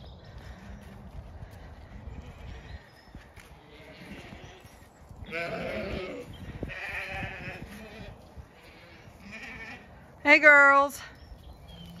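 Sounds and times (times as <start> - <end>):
sheep bleating: 3.6 - 10.0.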